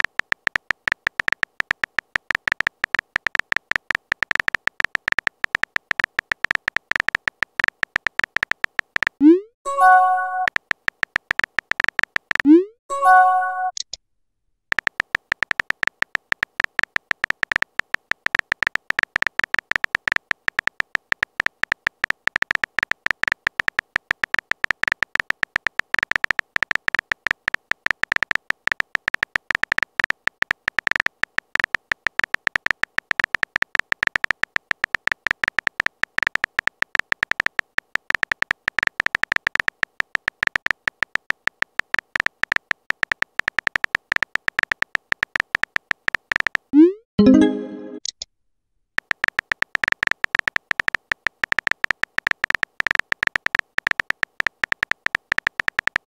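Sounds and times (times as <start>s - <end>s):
rapid high key clicks: 0.0s - 12.6s, 14.7s - 48.2s, 49.0s - 56.0s.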